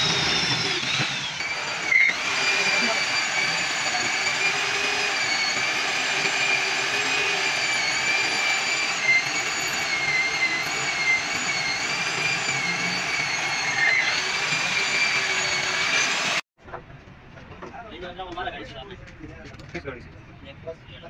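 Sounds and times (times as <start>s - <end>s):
electric drill boring into steel: 0.0s - 16.4s.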